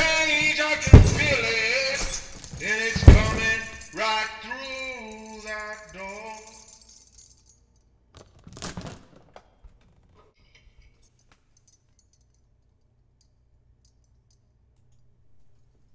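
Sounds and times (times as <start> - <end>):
bright metallic jingle: 0.0 - 7.9.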